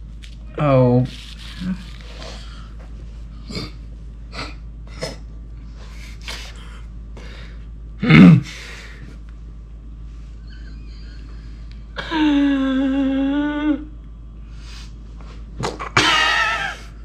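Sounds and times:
man breathing sharply and gasping: 0:08.4 - 0:09.2.

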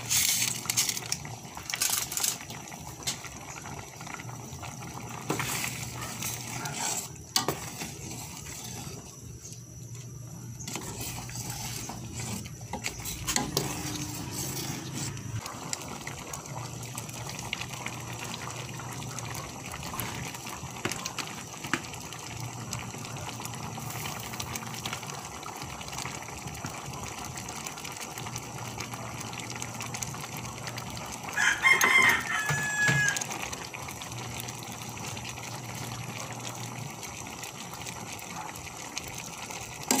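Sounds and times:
soup bubbling in a pot: 0:00.0 - 0:40.0
rooster crowing: 0:31.3 - 0:33.4.

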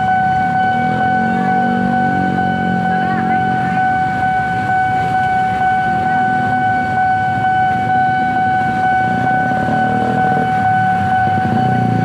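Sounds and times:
motorcycle and car engines: 0:00.0 - 0:12.0
railroad crossing alarm tone: 0:00.0 - 0:12.0.

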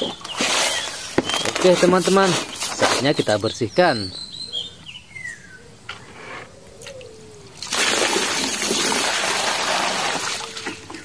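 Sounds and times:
water pouring and splashing: 0:00.0 - 0:03.0, 0:07.6 - 0:11.0.

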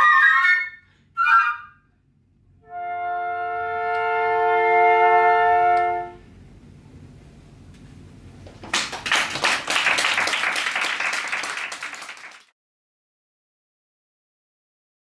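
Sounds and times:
flutes holding a chord: 0:02.6 - 0:06.3
audience applause: 0:08.5 - 0:12.5.

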